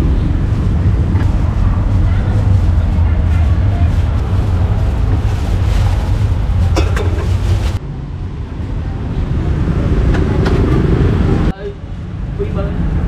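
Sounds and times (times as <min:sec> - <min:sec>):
plastic bag crackling: 0:00.0 - 0:07.8
street traffic rumble: 0:00.0 - 0:13.0.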